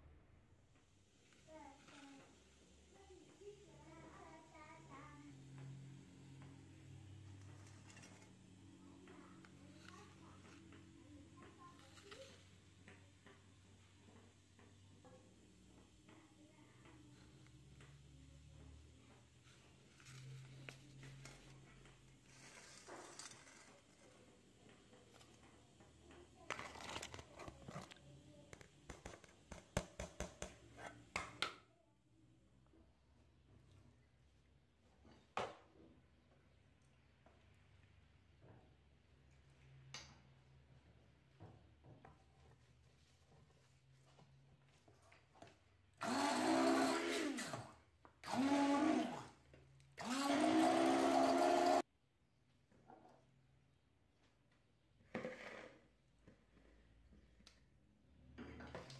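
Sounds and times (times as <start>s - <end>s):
rustling and scraping: 19.4s - 25.6s
stick blender motor whirring: 46.0s - 51.8s.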